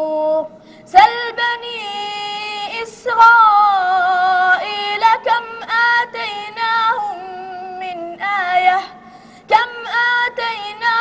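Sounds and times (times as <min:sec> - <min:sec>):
boy chanting recitation: 0:00.0 - 0:11.0.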